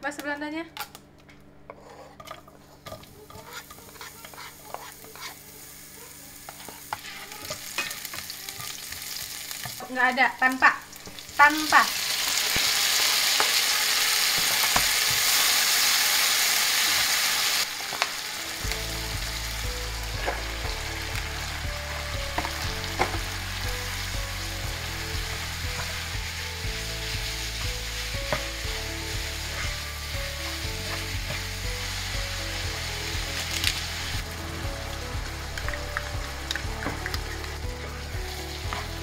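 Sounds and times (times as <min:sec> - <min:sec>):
spatula scraping pan: 0:01.7 - 0:05.7, 0:06.4 - 0:08.7
meat and vegetables frying: 0:02.2 - 0:39.0
tomatoes sizzling in hot oil: 0:02.4 - 0:39.0.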